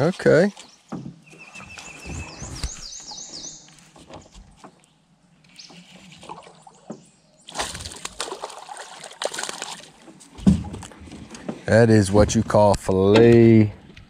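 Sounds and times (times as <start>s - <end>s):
water splashing from thrashing fish: 7.5s - 10.1s.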